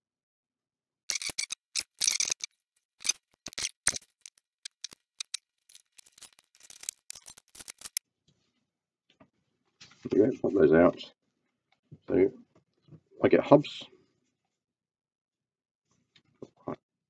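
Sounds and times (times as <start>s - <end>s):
balsa wood clicks and crackles: 1.1s - 8.0s.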